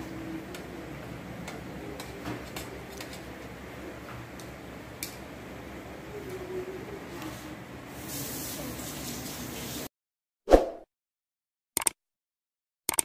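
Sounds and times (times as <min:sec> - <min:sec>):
room noise: 0:00.0 - 0:09.8.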